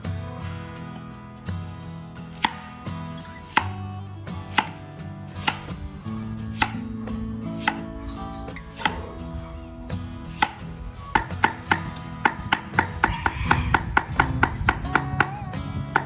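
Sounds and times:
cleaver chopping on wooden block: 2.3 - 2.6, 3.5 - 3.8, 4.5 - 4.8, 5.4 - 5.8, 6.5 - 6.9, 7.6 - 8.0, 8.7 - 9.1, 10.3 - 16.0.

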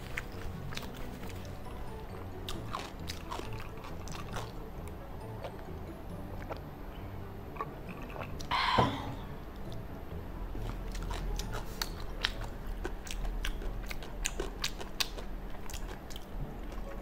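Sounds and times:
person chewing with wet smacks: 0.0 - 1.6, 2.4 - 6.7, 7.5 - 8.5, 10.6 - 17.0.

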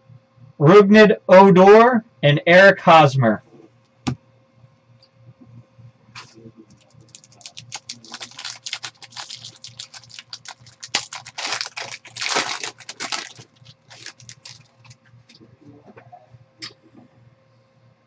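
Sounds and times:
foil pack crinkling: 6.8 - 15.0.

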